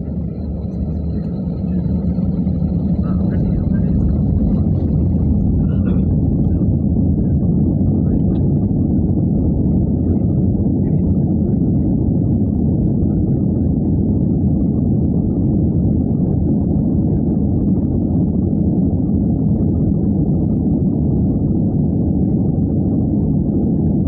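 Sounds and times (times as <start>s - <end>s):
jet engine rumble: 0.0s - 24.0s.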